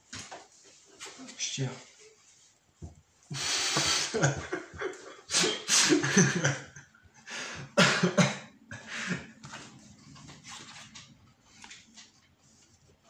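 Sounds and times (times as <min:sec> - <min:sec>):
person coughing: 0:07.6 - 0:09.3.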